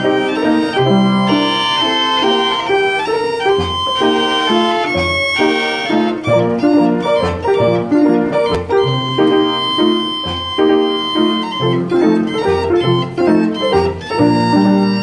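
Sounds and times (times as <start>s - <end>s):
mechanically bowed violin melody: 0.0s - 15.0s
piano chords and bass notes: 0.0s - 15.0s.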